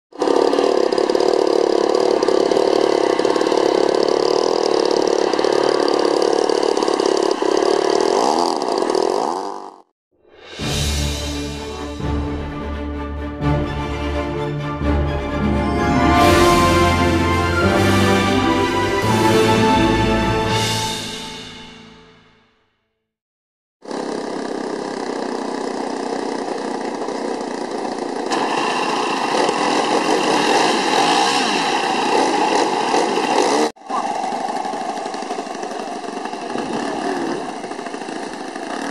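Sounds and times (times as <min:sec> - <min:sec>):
model airplane engines droning: 0:00.2 - 0:09.1, 0:23.9 - 0:38.9.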